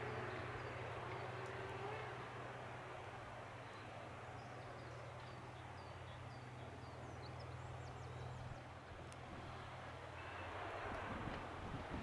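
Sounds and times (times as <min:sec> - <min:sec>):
tractor diesel engine running: 0:00.0 - 0:04.5.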